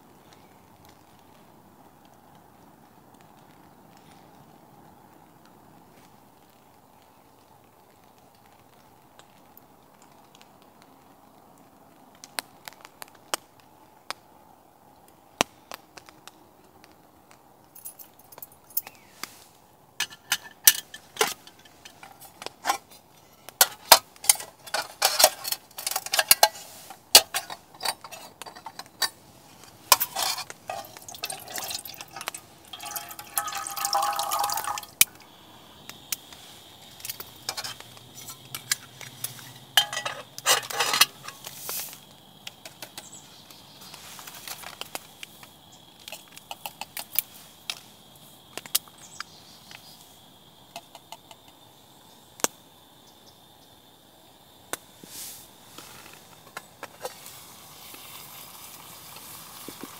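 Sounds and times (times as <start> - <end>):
utensils and dishes clinking: 29.9 - 35.0, 37.5 - 41.5
liquid pouring: 30.0 - 35.2.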